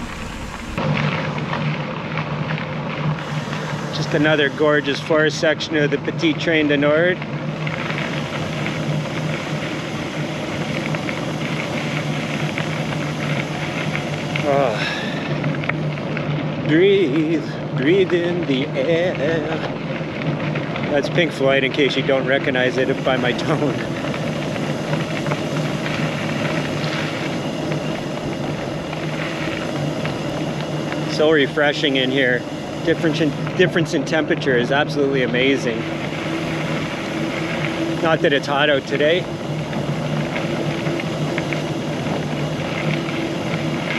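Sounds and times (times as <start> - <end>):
wind on microphone: 0.0 - 0.9
bicycle tyres on gravel: 0.0 - 43.9
constant low hum: 0.0 - 43.9.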